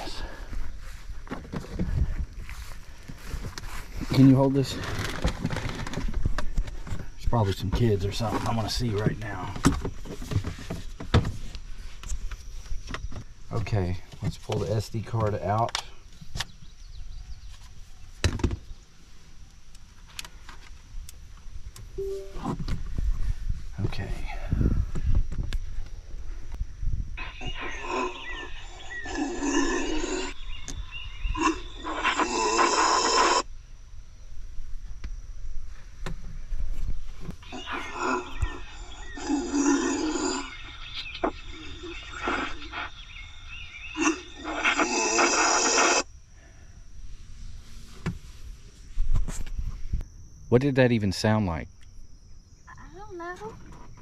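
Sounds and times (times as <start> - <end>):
animal rough calls: 27.2 - 30.5, 31.2 - 33.5, 37.4 - 46.1.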